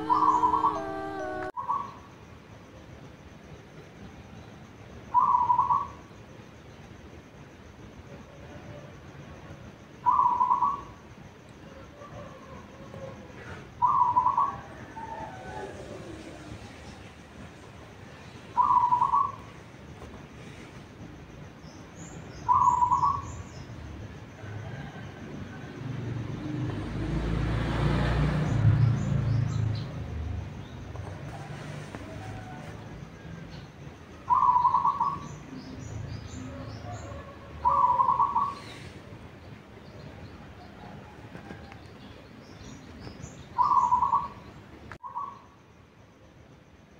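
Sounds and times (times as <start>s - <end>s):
fainter cooing of other doves: 0.0s - 1.5s, 11.9s - 17.5s, 31.0s - 33.4s
vehicle engine passing: 0.0s - 1.5s, 25.6s - 33.2s
dove cooing in pulsed notes: 0.0s - 2.0s, 34.3s - 35.2s
faint high bird chirps: 0.0s - 2.2s, 18.1s - 20.1s, 41.4s - 45.6s.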